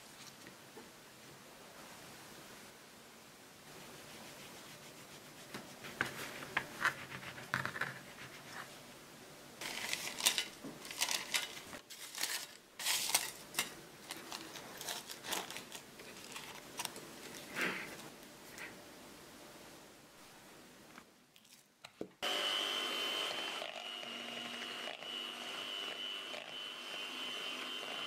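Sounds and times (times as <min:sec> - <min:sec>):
parchment paper crinkling: 0:09.6 - 0:18.7.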